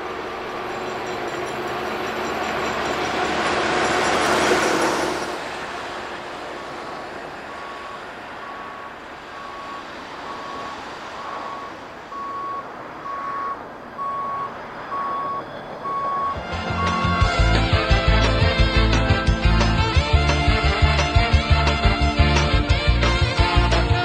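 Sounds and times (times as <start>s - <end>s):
track machine rumble: 0.0s - 10.4s, 16.0s - 24.0s
truck reversing alarm beeping: 0.0s - 19.9s.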